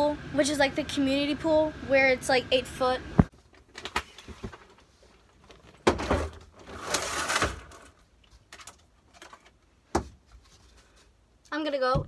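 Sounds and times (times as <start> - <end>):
suitcase scraping on shelf: 6.1 - 7.8.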